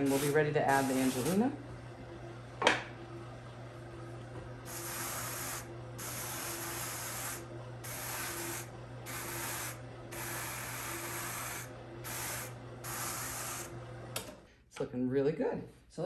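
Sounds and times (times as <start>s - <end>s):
brush rubbing over wool fibre: 0.0s - 1.4s.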